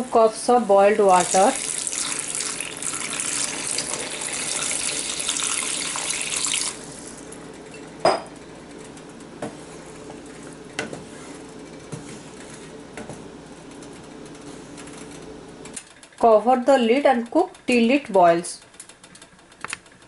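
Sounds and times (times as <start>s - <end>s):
water pouring into a pan: 1.0s - 7.2s.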